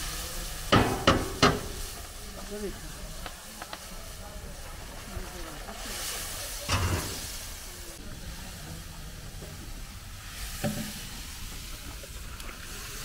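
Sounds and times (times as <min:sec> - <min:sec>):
steady hiss: 0:00.0 - 0:13.0
loud knock: 0:00.8 - 0:01.7.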